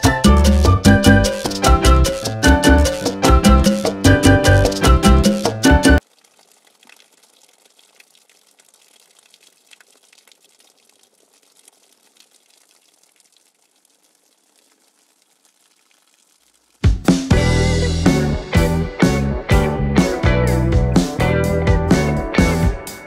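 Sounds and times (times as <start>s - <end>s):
water drops falling on leaves: 6.0s - 16.9s.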